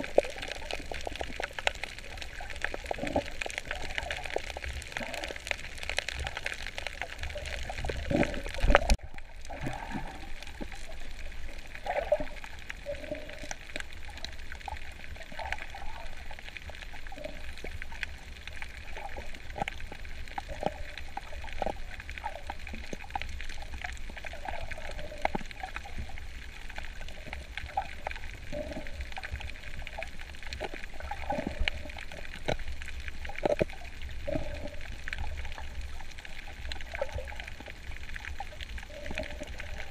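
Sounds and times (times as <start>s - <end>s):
bubbly blips: 0.0s - 10.6s
water sloshing underwater: 0.0s - 39.9s.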